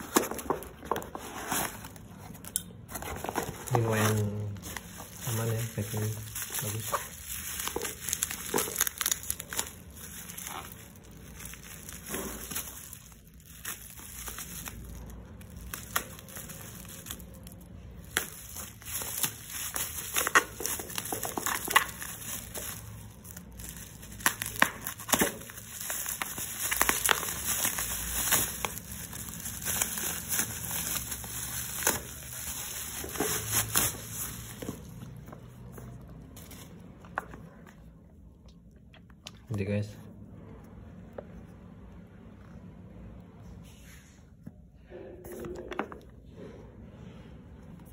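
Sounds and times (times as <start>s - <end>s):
plastic wrapping crinkling and tearing: 0.0s - 37.3s.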